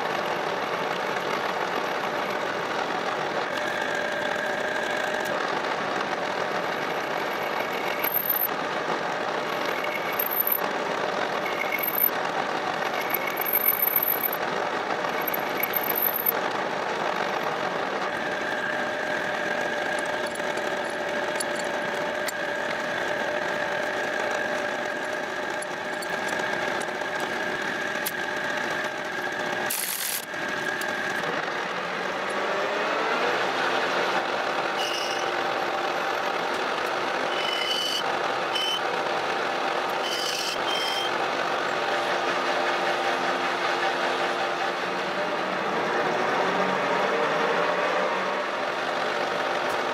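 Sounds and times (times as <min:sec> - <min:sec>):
metal lathe running: 0:00.0 - 0:45.4
high-pitched cutting squeal: 0:07.1 - 0:08.5, 0:09.6 - 0:10.6, 0:11.4 - 0:12.2, 0:12.9 - 0:14.4, 0:15.2 - 0:16.4, 0:34.7 - 0:35.4, 0:37.2 - 0:38.9, 0:39.9 - 0:41.2.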